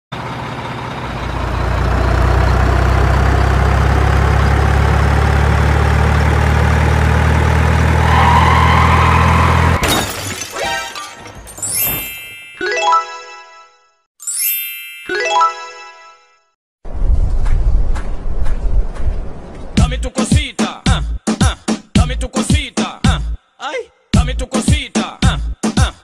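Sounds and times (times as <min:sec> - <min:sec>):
diesel truck engine: 0:00.1 - 0:09.8
clinks and tinkles: 0:10.6 - 0:12.8, 0:14.2 - 0:15.2.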